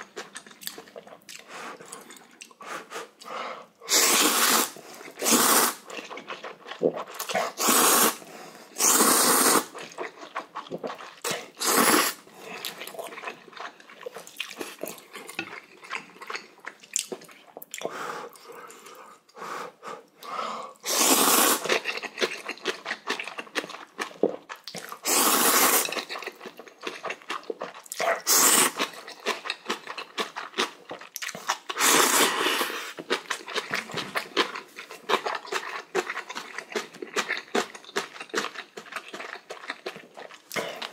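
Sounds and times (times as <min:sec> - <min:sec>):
chewing: 0:00.0 - 0:02.6, 0:05.0 - 0:07.7, 0:09.6 - 0:19.3, 0:21.6 - 0:40.9
man slurping noodles: 0:03.8 - 0:05.9, 0:07.3 - 0:09.8, 0:11.3 - 0:12.2, 0:20.8 - 0:21.8, 0:25.0 - 0:25.9, 0:28.1 - 0:28.8, 0:31.7 - 0:33.1.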